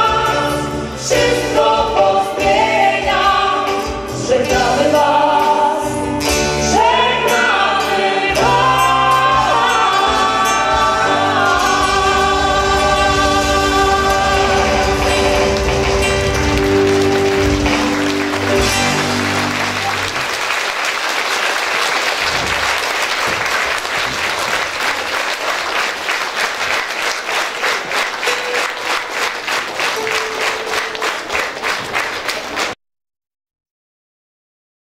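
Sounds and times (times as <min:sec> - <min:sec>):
rhythmic clapping in unison: 0:13.7 - 0:32.8
audience applause: 0:14.3 - 0:32.8.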